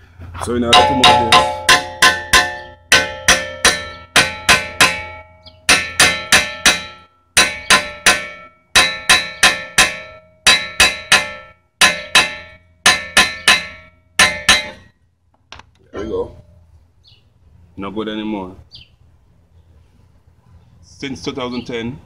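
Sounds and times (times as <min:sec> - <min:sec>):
hammer striking metal brake rotor: 0:00.6 - 0:14.9.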